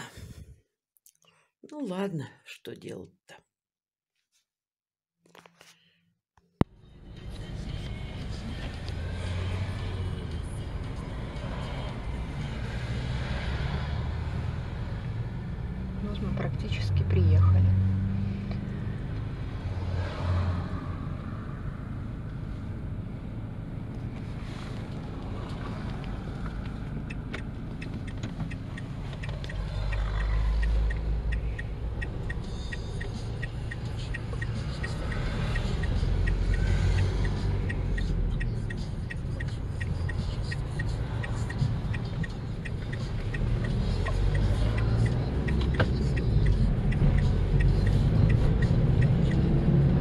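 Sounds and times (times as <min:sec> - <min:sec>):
vehicle engine and road rumble: 0:05.3 - 0:50.0
regular ticking: 0:26.6 - 0:50.0.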